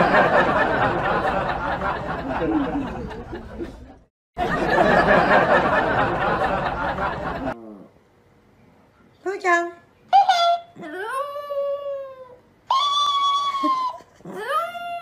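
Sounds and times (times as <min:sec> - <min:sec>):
crowd laughing and chattering: 0:00.0 - 0:07.6.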